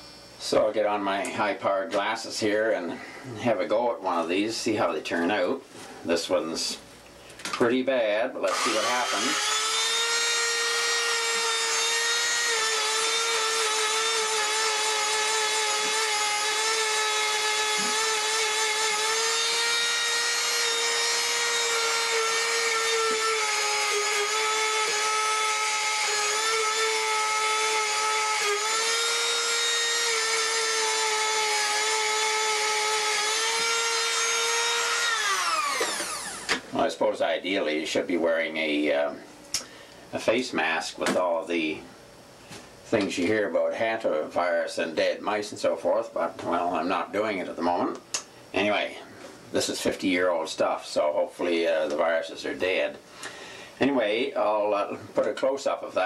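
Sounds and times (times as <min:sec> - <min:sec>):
rotary tool wire brush whine: 0:08.5 - 0:36.6.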